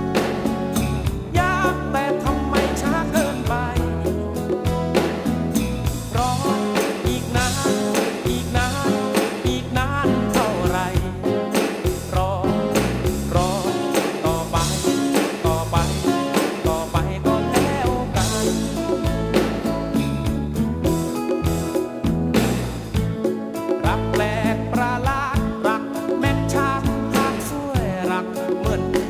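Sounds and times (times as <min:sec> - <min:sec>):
steady drum beat: 0:00.0 - 0:29.0
man singing: 0:01.3 - 0:04.7, 0:06.0 - 0:19.8, 0:23.6 - 0:29.0.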